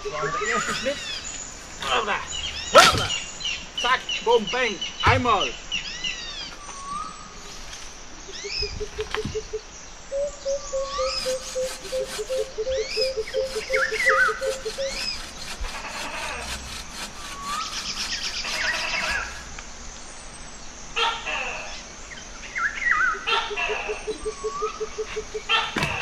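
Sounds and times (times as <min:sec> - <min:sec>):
birds whistling: 0:00.0 - 0:20.8, 0:21.7 - 0:26.0
low repeated bird call: 0:00.0 - 0:26.0
bow saw cutting log: 0:10.9 - 0:19.7.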